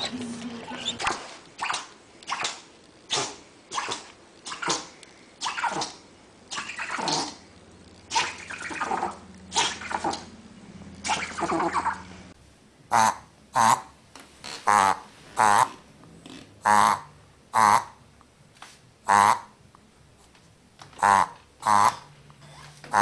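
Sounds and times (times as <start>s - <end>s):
small dog sneezing: 1.0s - 7.4s, 9.5s - 10.2s.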